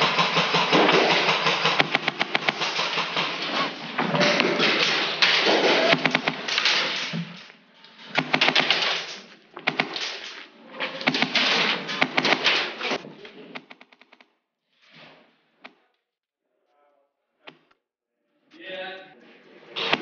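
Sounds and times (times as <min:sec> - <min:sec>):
rapid airsoft gunfire: 0:00.0 - 0:13.0, 0:19.8 - 0:20.0.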